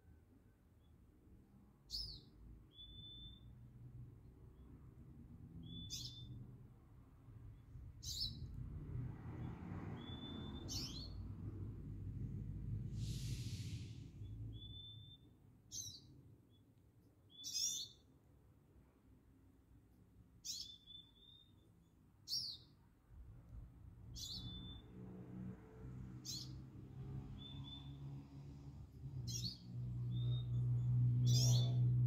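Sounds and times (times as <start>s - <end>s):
songbird calling: 1.9s - 3.5s, 5.6s - 6.4s, 17.3s - 18.0s, 31.2s - 31.9s
short hiss: 13.0s - 14.1s.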